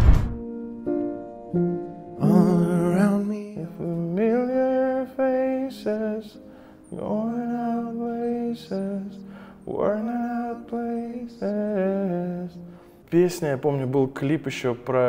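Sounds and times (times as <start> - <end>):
person singing long notes: 2.2 - 12.7.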